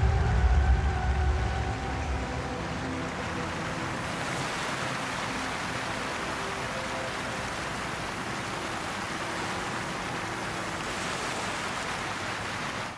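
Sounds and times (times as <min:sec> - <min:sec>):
flowing water rushing: 0:00.0 - 0:12.9.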